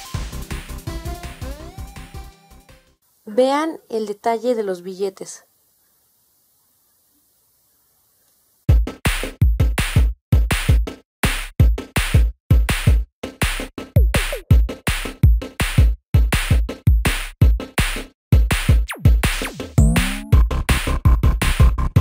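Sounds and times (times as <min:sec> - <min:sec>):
electronic music with drum-machine beat: 0:00.0 - 0:02.7, 0:11.7 - 0:17.8, 0:18.4 - 0:22.0.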